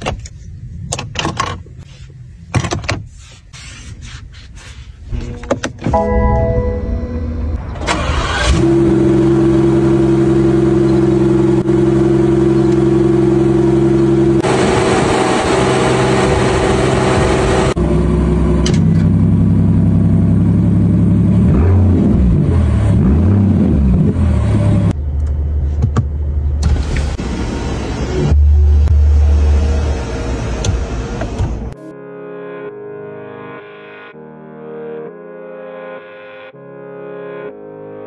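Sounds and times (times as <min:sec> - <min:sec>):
car engine starting and idling: 0:05.2 - 0:31.8.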